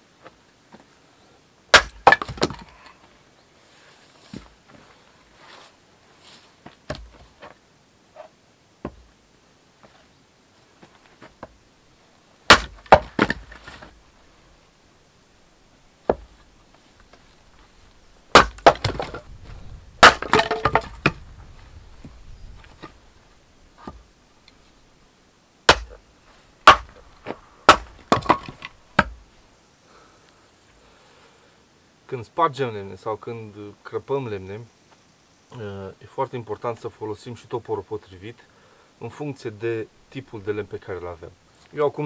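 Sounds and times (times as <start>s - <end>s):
axe chopping wood: 1.7s - 2.7s, 6.9s - 7.2s, 12.5s - 13.9s, 16.1s - 16.3s, 18.3s - 19.2s, 20.0s - 21.2s, 25.7s - 26.0s, 26.6s - 29.2s
split wood pieces knocking down: 1.7s - 2.8s, 12.5s - 13.9s, 18.3s - 21.3s, 25.7s - 26.0s, 26.6s - 29.2s.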